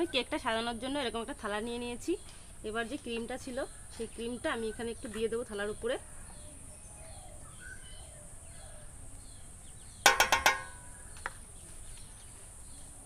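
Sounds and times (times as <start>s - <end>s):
faint insect chirping: 0.0s - 13.0s
spoon tapping metal plate: 10.1s - 10.9s.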